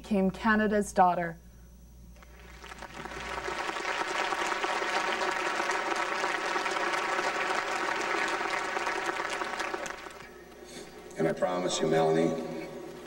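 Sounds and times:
large audience applauding: 2.2 - 10.5.

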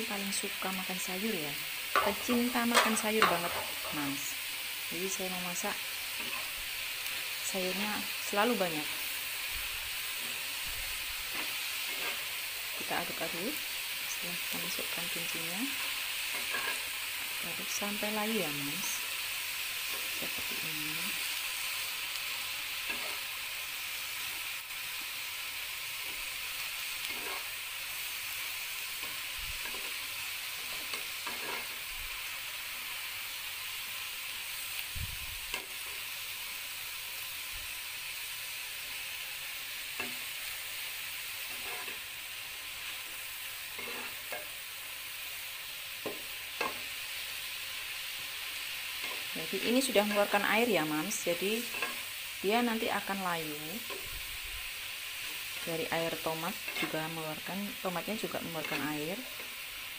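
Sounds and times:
vegetables sizzling in a pan: 0.0 - 59.9
spatula scraping and tapping pan: 2.0 - 3.8, 16.3 - 16.9, 27.1 - 27.5, 30.7 - 31.8, 41.5 - 42.0, 51.7 - 52.0.

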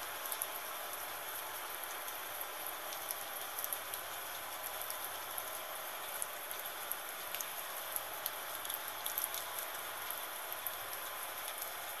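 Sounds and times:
gentle rain falling: 0.0 - 12.0.

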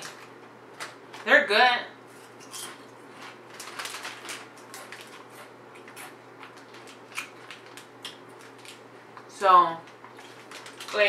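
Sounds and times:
potato chips crunching: 2.3 - 8.8, 9.9 - 11.0.

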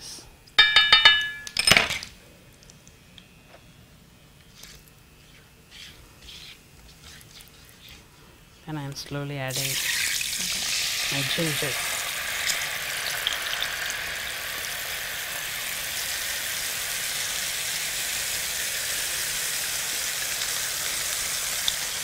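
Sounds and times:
paste sizzling in hot oil: 9.5 - 22.0.

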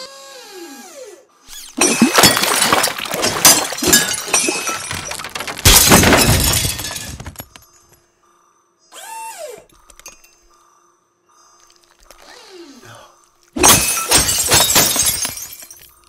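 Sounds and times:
glass shattering: 1.8 - 8.0, 13.6 - 16.0.

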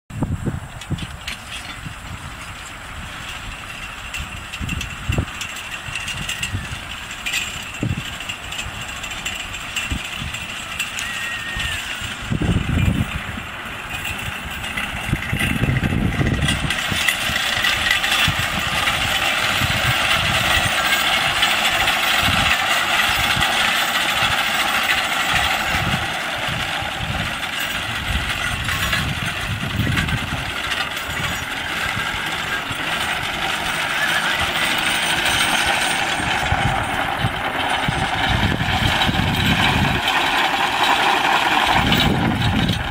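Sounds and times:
mower cutter bar clattering: 0.8 - 42.9
low thumps and rumbles: 12.1 - 42.9.

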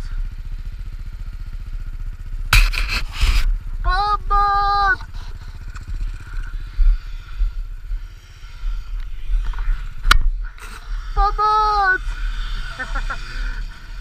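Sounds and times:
vehicle engine running low speed: 0.0 - 14.0
sharp knock: 2.5 - 3.4.

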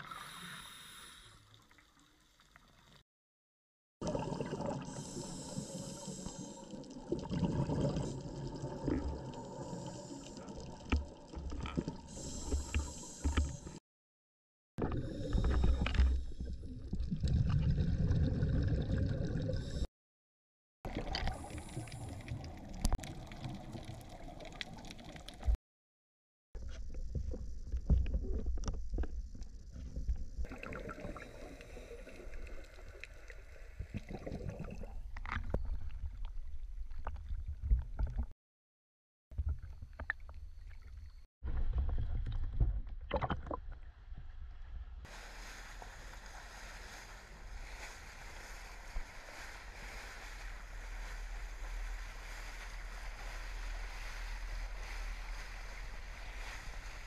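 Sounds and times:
underwater water noise: 4.0 - 13.8, 14.8 - 19.9, 20.9 - 25.6, 26.9 - 38.3, 45.1 - 57.0
water and wind from moving boat: 45.1 - 57.0.

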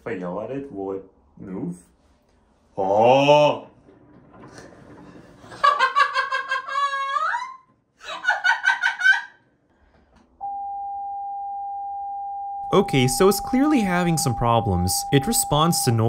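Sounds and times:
woman laughing: 5.5 - 9.4
steady pure tone: 10.4 - 16.0.

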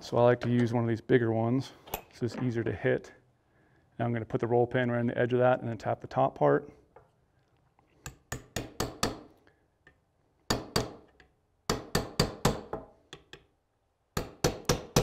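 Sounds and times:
small hammer tapping metal pin: 12.0 - 13.5.

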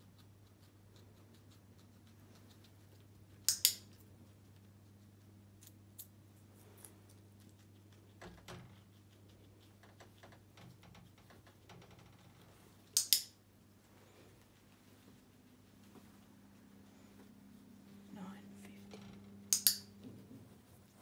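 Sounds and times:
guinea pig chewing: 0.0 - 17.9, 19.5 - 21.0
faint low hum: 0.0 - 21.0
sharp clicks: 12.9 - 13.4, 19.5 - 19.9.

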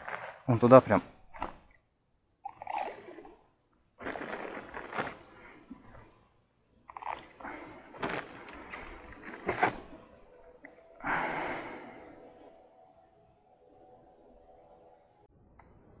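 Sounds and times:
handling knocks and rustles: 7.9 - 10.2
breathy rush of noise: 10.8 - 13.2.

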